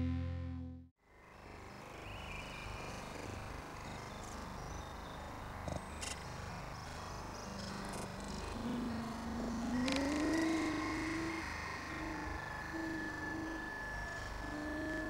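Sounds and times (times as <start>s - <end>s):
distorted electric guitar drone: 0.0s - 0.8s
ambient noise haze: 1.2s - 15.0s.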